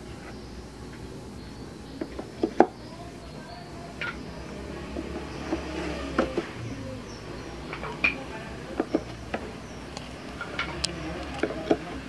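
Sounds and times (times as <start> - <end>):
wooden knocks and clicks: 2.0 - 2.9, 4.0 - 6.6, 7.6 - 12.0.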